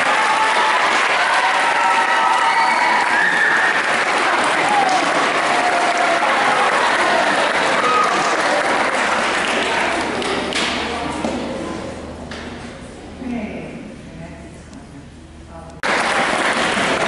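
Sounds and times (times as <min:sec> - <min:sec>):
children applauding: 0:00.0 - 0:10.3, 0:15.8 - 0:17.0.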